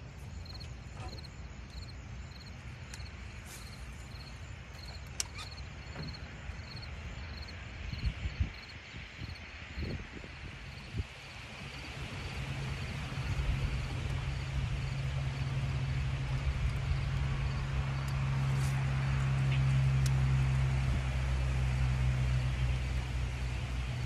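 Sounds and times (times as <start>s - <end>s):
faint ticks: 0.4s - 5.6s.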